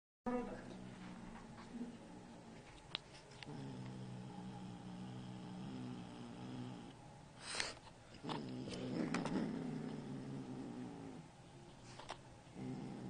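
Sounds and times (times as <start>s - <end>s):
kitten growling: 3.4s - 7.0s, 8.2s - 11.3s, 12.5s - 13.0s.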